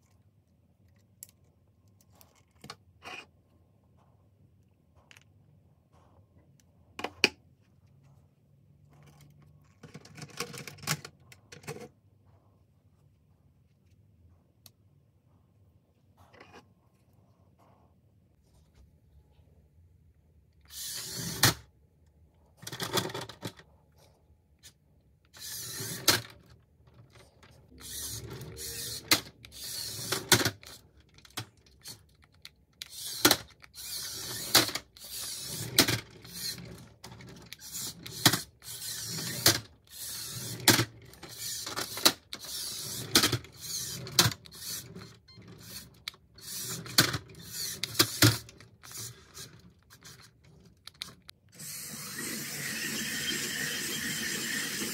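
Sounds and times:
toy car electric motors whirring: 0:20.7 - 0:21.6, 0:24.6 - 0:26.4, 0:27.7 - 0:30.9, 0:31.6 - 0:54.9.

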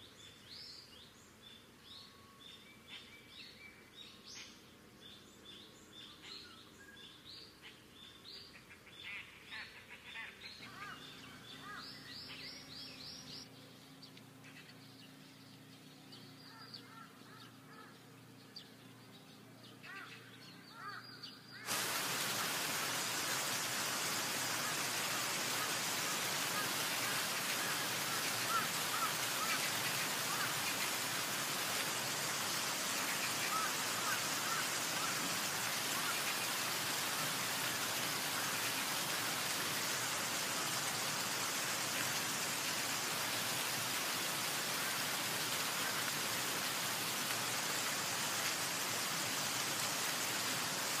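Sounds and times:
waterfall rushing: 0:21.7 - 0:51.0.

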